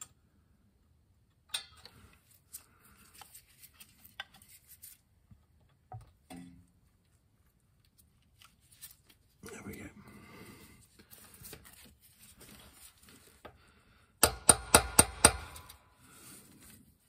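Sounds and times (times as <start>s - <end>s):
hammer tapping on metal punch: 14.2s - 15.6s.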